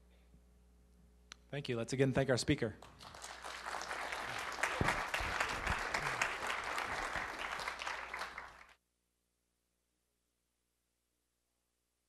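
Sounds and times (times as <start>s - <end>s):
audience applauding: 2.8s - 8.8s.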